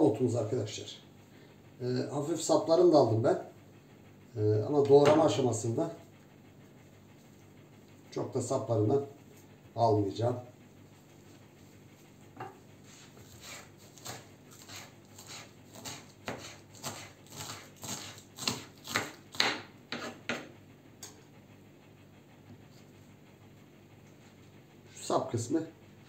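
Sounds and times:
knife chopping on wooden board: 13.2 - 20.5.

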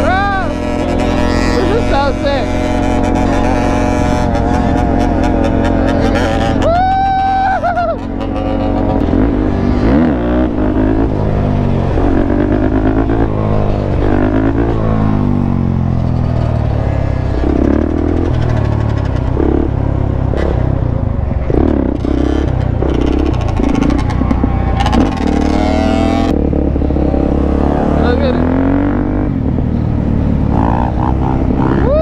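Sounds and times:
dirt bikes running: 0.0 - 32.0
motorcycle engine revving: 0.0 - 32.0.

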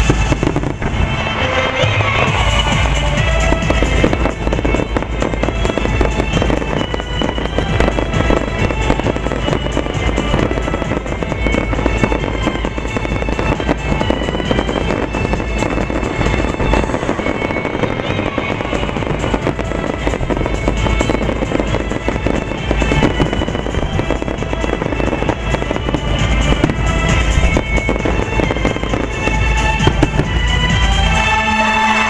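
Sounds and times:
fireworks bursting and crackling: 0.0 - 32.0
music playing: 0.0 - 32.0.

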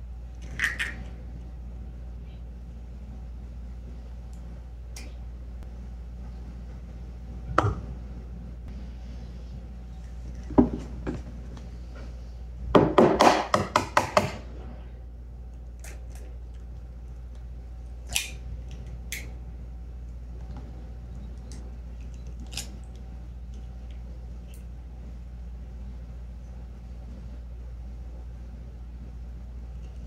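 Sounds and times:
egg cracking: 0.4 - 1.2.

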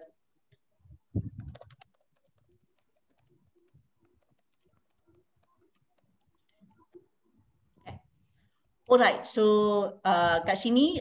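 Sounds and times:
typing on computer keyboard: 1.3 - 6.4.

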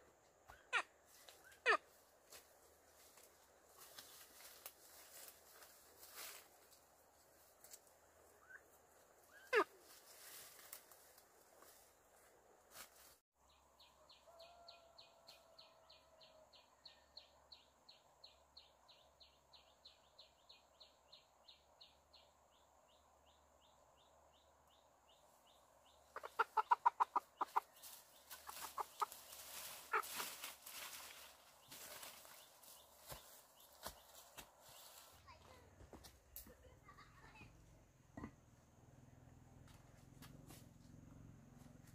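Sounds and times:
chicken squawking: 26.2 - 27.6, 29.8 - 30.2.

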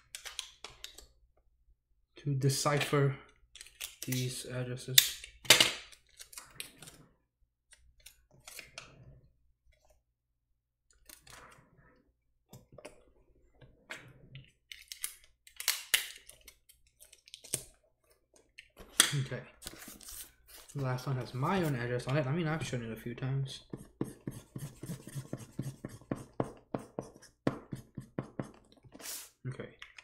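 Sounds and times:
marker scribbling on cardboard: 23.6 - 28.6.

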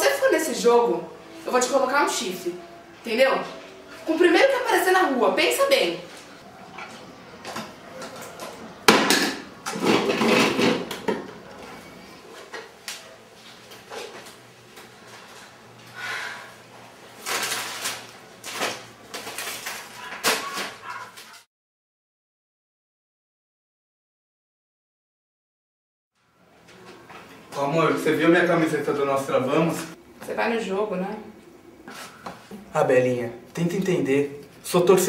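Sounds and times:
groceries knocking and clinking: 6.7 - 11.4, 17.2 - 21.4.

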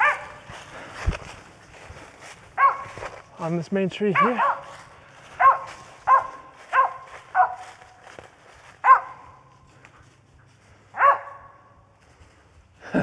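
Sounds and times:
dog barking with echo: 0.0 - 0.4, 2.6 - 3.0, 4.1 - 4.8, 5.4 - 7.7, 8.8 - 9.5, 10.9 - 11.7.

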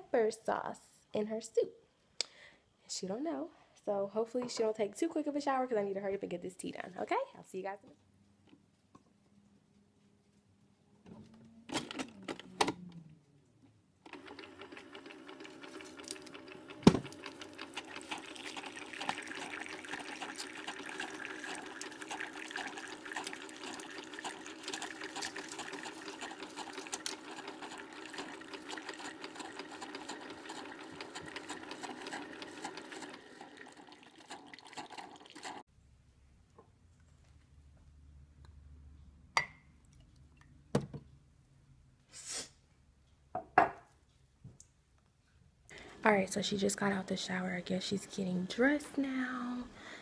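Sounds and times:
pump buzzing: 14.1 - 35.6
hot water streaming into mug: 14.1 - 35.7.

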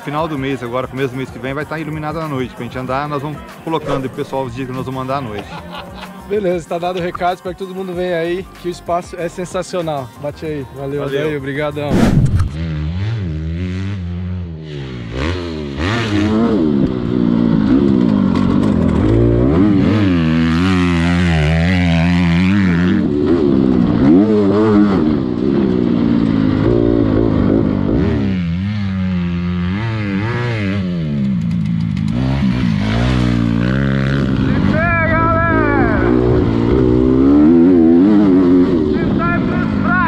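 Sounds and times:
dirt bike engine revving: 11.8 - 40.0.

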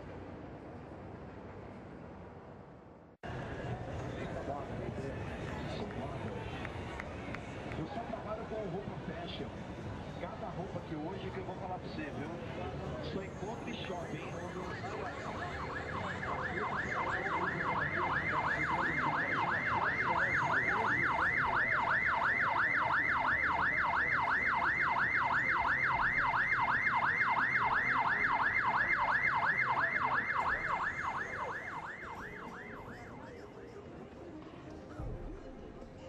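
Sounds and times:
low street noise: 0.0 - 36.0
police siren yelping: 14.5 - 33.7.

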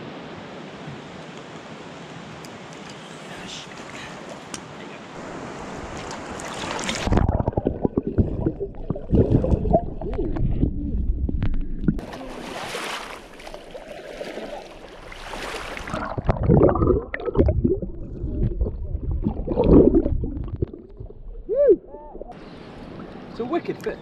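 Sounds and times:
water splashing at surface: 5.9 - 21.3
muffled underwater gurgling: 7.0 - 12.3, 15.9 - 22.4.

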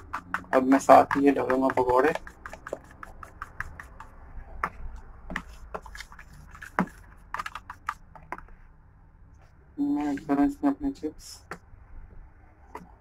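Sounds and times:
fork stirring batter in plastic tub: 0.0 - 8.6.

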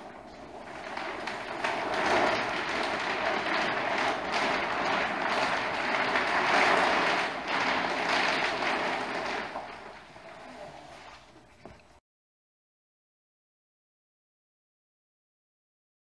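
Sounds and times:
sail rustling and flapping: 0.0 - 11.9.

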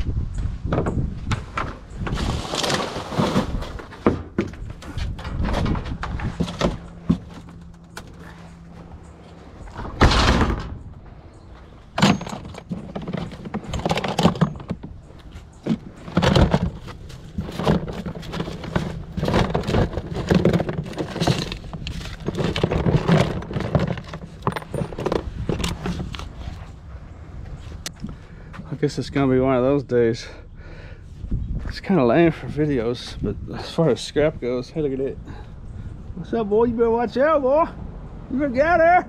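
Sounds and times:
junk clattering in a dumpster: 0.8 - 11.1, 11.9 - 15.0, 15.6 - 26.1
knocks and thunks: 3.2 - 8.4, 9.7 - 11.2, 12.0 - 15.0.

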